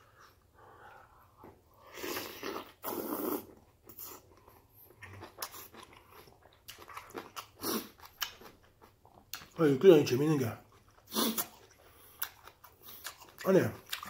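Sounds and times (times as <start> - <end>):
wet chewing: 1.4 - 9.6, 10.6 - 14.0
person slurping noodles: 1.8 - 4.2, 11.1 - 11.6.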